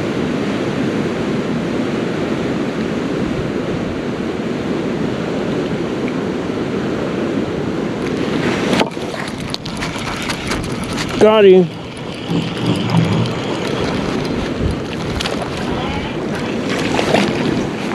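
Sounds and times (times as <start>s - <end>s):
creek water rushing: 7.8s - 17.9s.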